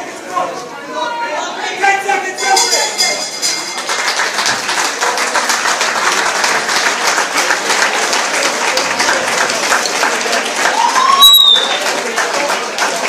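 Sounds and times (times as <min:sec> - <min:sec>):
audience applauding: 0:03.6 - 0:13.0.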